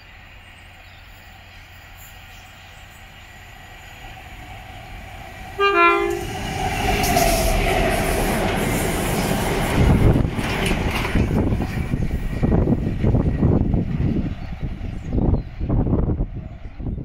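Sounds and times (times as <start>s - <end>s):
train engine and wheels rumbling: 0.0s - 17.0s
locomotive horn blast: 5.5s - 6.5s.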